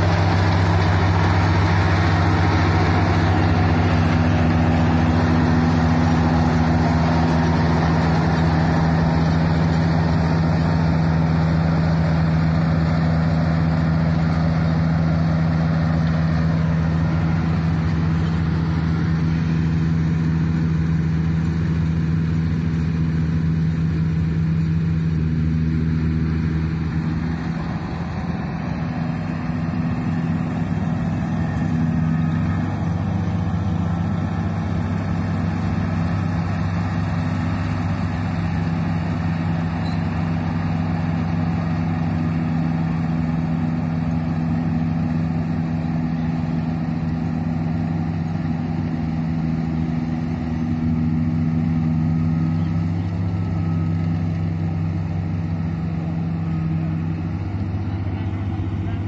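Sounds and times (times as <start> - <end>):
combine harvester engine running: 0.0 - 59.0.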